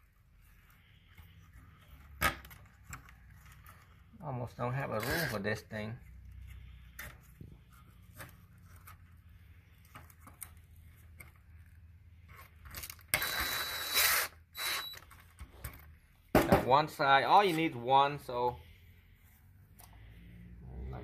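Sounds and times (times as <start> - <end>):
cordless power driver whine: 13.2 - 15.0.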